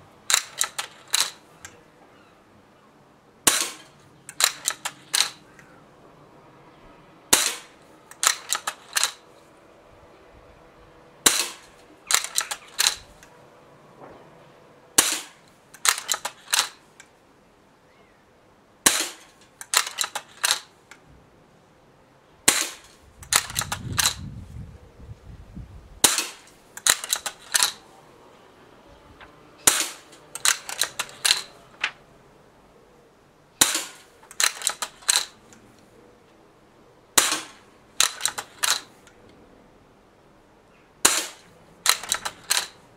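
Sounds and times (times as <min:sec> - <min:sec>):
air rifle shots: 0:00.3 - 0:01.6, 0:03.4 - 0:05.6, 0:07.3 - 0:09.5, 0:11.2 - 0:13.3, 0:14.9 - 0:16.9, 0:18.8 - 0:20.8, 0:22.4 - 0:24.3, 0:26.0 - 0:27.9, 0:29.6 - 0:31.8, 0:33.6 - 0:35.5, 0:37.2 - 0:39.0, 0:41.0 - 0:42.9
metallic clicks of rifle cocking: 0:00.3 - 0:01.8, 0:03.5 - 0:05.7, 0:07.3 - 0:09.5, 0:11.3 - 0:13.3, 0:15.0 - 0:17.2, 0:18.9 - 0:21.0, 0:22.5 - 0:24.2, 0:26.0 - 0:27.9, 0:29.6 - 0:32.0, 0:33.6 - 0:35.9, 0:37.2 - 0:39.2, 0:41.0 - 0:42.8.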